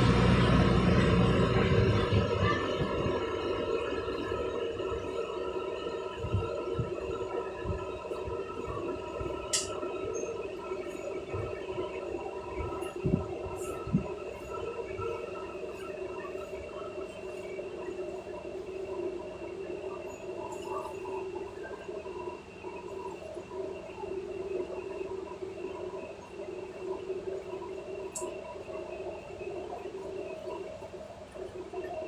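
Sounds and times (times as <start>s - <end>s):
ferry engines droning: 0.0s - 23.9s.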